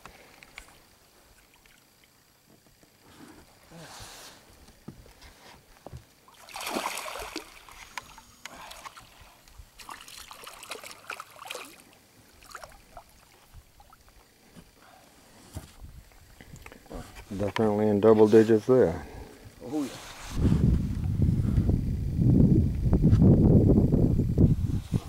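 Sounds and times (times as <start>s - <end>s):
fish thrashing and splashing: 6.3s - 8.0s, 9.8s - 14.1s.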